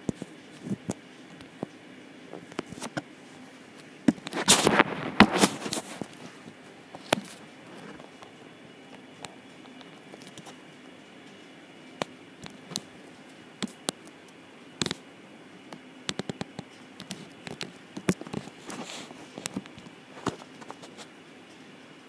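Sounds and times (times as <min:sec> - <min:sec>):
clicks and taps on microphone: 0:16.1 - 0:18.8.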